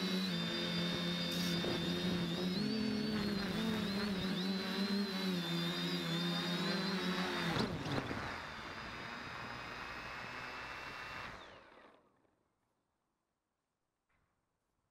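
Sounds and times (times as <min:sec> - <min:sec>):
high whine: 0:00.0 - 0:07.0
drone propellers buzzing: 0:00.0 - 0:11.6.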